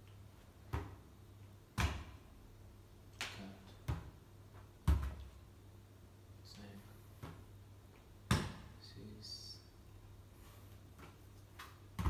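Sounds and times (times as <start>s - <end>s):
ball bouncing on carpet: 0.7s - 1.0s, 4.8s - 5.3s.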